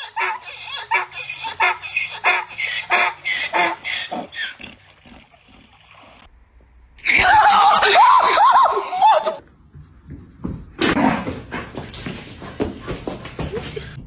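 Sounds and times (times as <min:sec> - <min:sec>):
donkey braying: 0:00.0 - 0:05.8.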